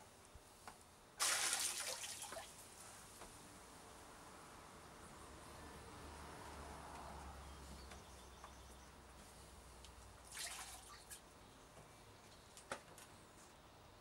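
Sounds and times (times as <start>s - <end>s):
water dripping: 1.2s - 2.5s
water splash: 1.2s - 2.6s, 10.3s - 11.2s.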